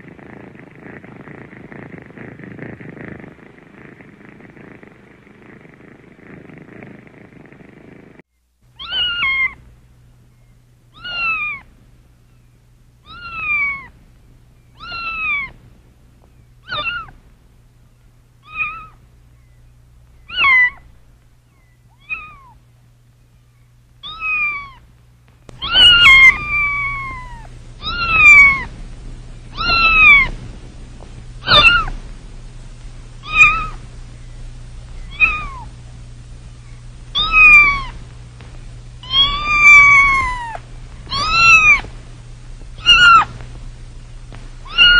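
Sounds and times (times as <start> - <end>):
kitten meowing: 8.8 - 9.6, 10.9 - 11.7, 13.0 - 13.9, 14.8 - 15.6, 16.6 - 17.2, 18.4 - 19.0, 20.3 - 20.8, 21.9 - 22.6, 24.0 - 24.8, 25.6 - 28.7, 29.5 - 30.3, 31.4 - 32.0, 33.2 - 33.8, 35.0 - 35.7, 37.1 - 38.0, 39.0 - 41.9, 42.8 - 43.4, 44.6 - 44.9.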